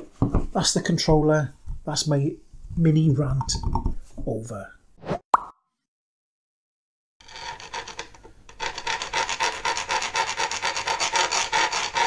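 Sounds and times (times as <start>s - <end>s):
hand file rasping in metal: 7.2s - 12.0s.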